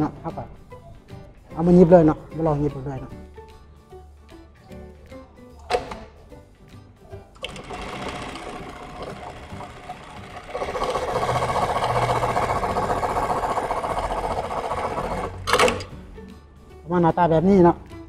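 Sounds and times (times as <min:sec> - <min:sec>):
sewing machine stitching: 0:07.4 - 0:15.9.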